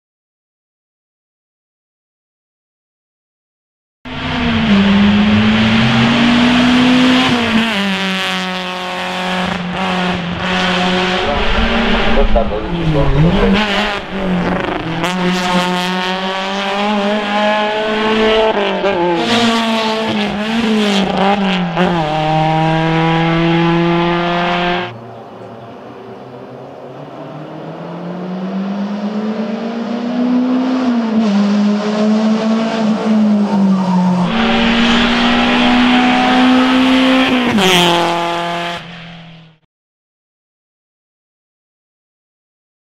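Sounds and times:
race car engine at high revs: 4.1 - 39.6
hard gear changes: 10.4 - 17.8
faint approaching car engine: 10.8 - 16.3.

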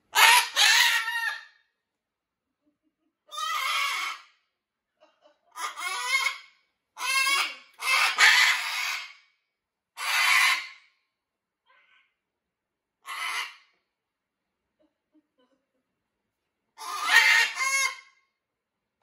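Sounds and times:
macaw squawking: 0.1 - 1.4, 3.3 - 4.3, 5.6 - 6.4, 7.0 - 9.2, 10.0 - 10.8, 13.1 - 13.6, 16.8 - 18.1.

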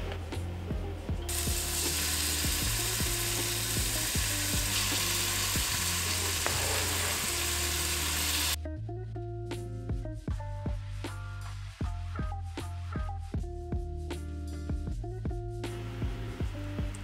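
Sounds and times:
background music with a steady beat: 0.0 - 17.0
chicken and peppers sizzling in oil: 1.3 - 8.6.

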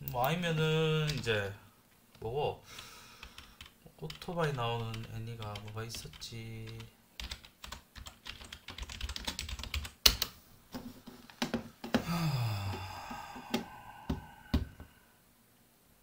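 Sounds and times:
typing on computer keyboard: 3.2 - 10.3.

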